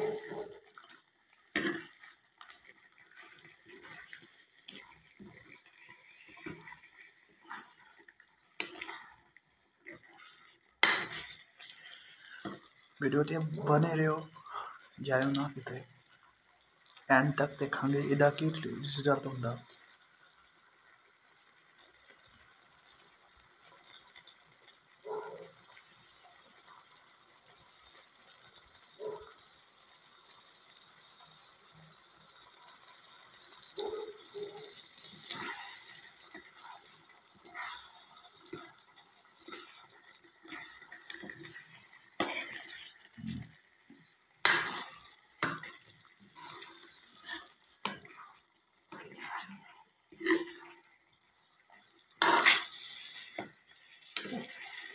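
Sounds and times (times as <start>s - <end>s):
curry sizzling and bubbling: 0.0s - 54.9s
metal ladle scraping a pan: 35.0s - 38.7s, 40.4s - 43.1s, 44.4s - 48.3s, 48.9s - 50.8s, 52.2s - 53.6s.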